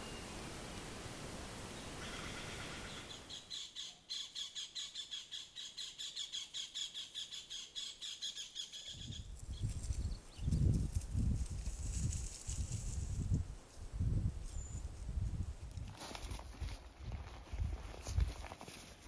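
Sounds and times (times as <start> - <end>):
microphone hiss: 0.0 - 3.6.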